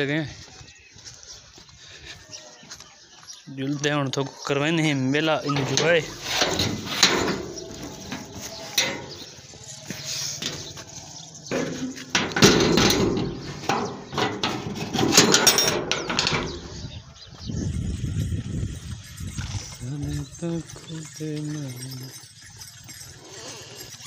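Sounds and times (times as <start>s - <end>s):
metal gate clanking: 5.3s - 9.6s, 11.4s - 16.8s.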